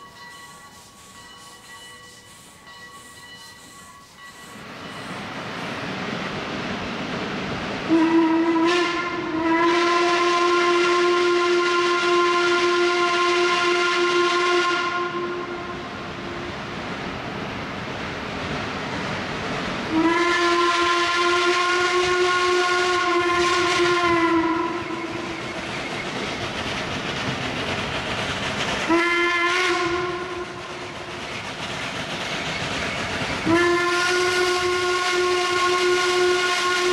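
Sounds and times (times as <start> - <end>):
steam locomotive running: 0.0 - 36.9
steam whistle blasts: 7.9 - 15.9, 19.9 - 25.6, 28.9 - 30.6, 33.4 - 36.9.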